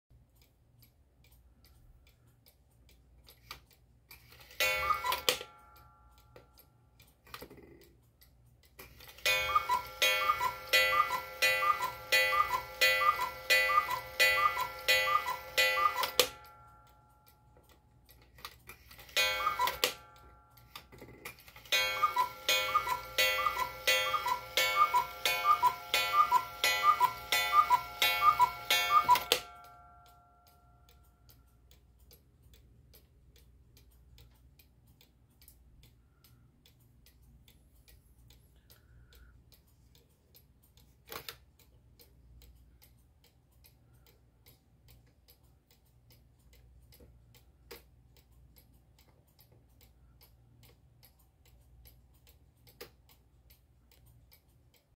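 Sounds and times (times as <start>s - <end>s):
clock ticking faintly: 0.1s - 54.9s
louder clock clicks: 4.2s - 5.9s, 8.8s - 16.8s, 18.4s - 30.2s
cuckoo clock call: 4.2s - 8.1s, 8.8s - 17.8s, 18.4s - 31.9s.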